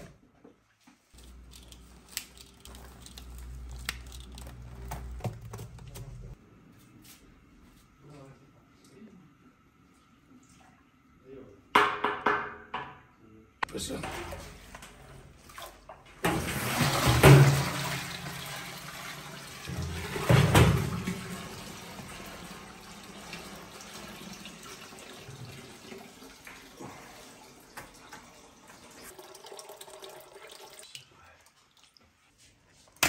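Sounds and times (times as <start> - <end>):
water trickling: 21.2 - 32.1.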